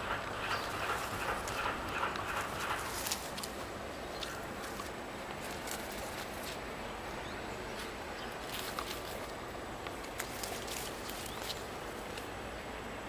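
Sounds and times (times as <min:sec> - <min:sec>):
outdoor background hiss: 0:00.0 - 0:13.0
rustling leaves: 0:00.0 - 0:13.0
claws scratching on bark: 0:00.4 - 0:06.7, 0:07.8 - 0:12.3.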